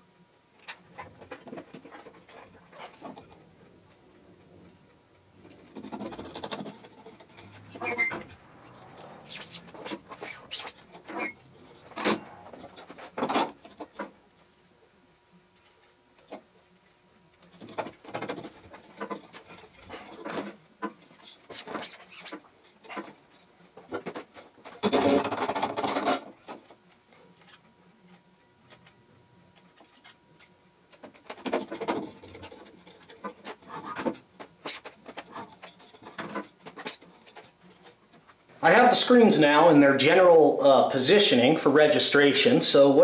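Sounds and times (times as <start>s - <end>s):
hands rubbing on mesh screens: 5.6s - 11.8s.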